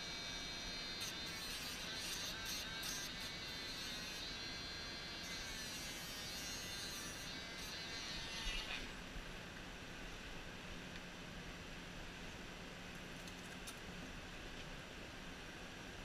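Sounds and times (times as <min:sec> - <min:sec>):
electric clippers running: 0:00.0 - 0:09.0.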